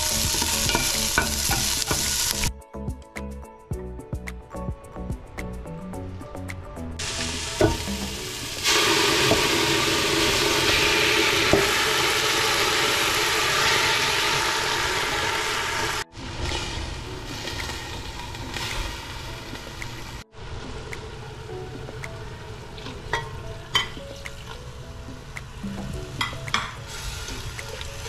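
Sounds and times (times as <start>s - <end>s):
meat sizzling in hot oil: 0.0s - 2.5s, 7.0s - 20.2s, 26.2s - 28.0s.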